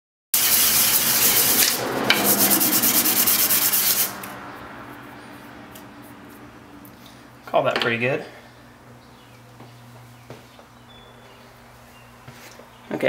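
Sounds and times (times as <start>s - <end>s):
metal rubbing on sandpaper: 0.4s - 4.3s.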